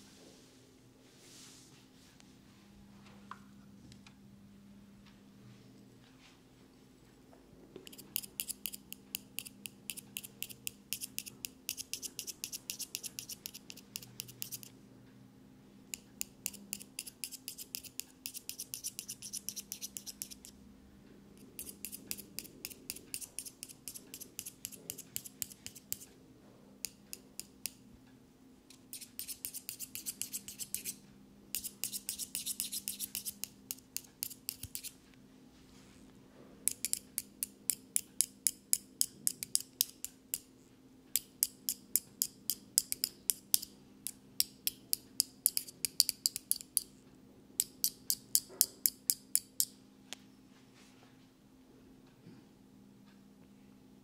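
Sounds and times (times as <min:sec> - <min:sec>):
metal tools clicking and scraping: 0:36.7 - 0:40.0.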